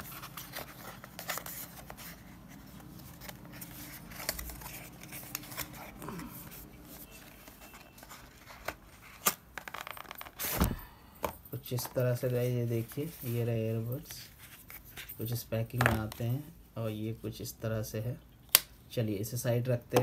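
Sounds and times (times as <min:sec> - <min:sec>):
cardboard scraping: 0:00.0 - 0:10.9.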